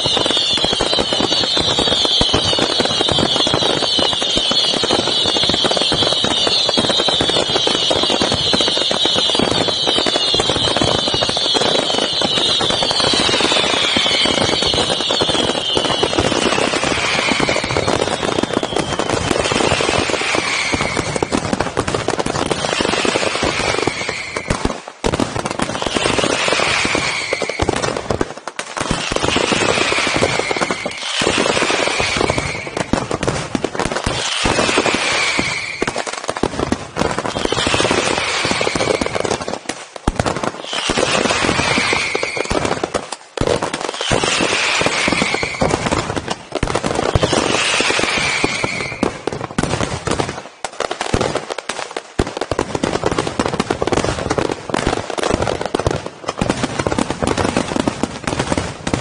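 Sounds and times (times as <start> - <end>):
falling firework whistle: 0.0 - 28.2, 28.8 - 51.2
fireworks bursting and crackling: 0.0 - 59.0.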